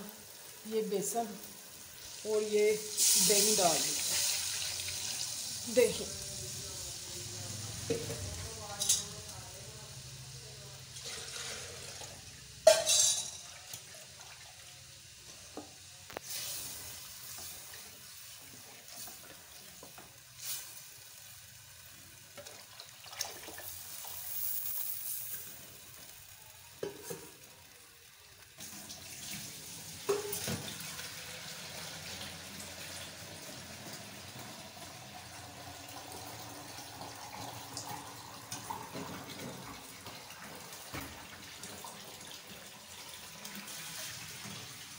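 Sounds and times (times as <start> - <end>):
liquid pouring into pot: 2.9 - 5.7, 10.9 - 14.9, 22.3 - 25.3, 28.6 - 44.8.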